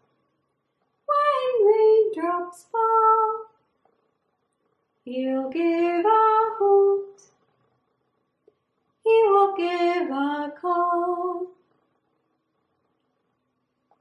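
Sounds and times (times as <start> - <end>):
woman singing unaccompanied: 1.1 - 3.6, 5.1 - 7.3, 9.0 - 11.6.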